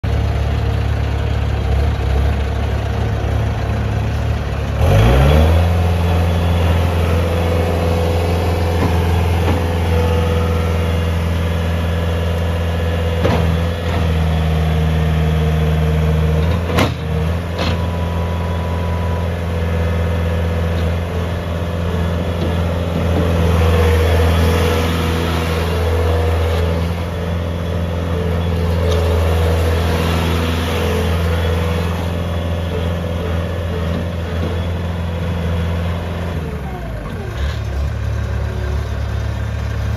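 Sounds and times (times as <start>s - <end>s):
diesel engine idling and revving: 0.0s - 39.9s.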